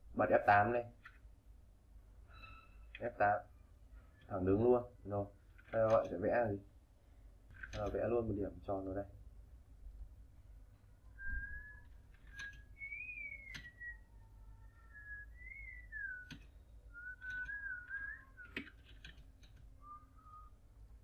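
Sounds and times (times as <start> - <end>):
person whistling a soft tune: 11.1 - 18.6, 19.8 - 20.6
sharp clicks: 12.0 - 13.8, 16.1 - 19.8.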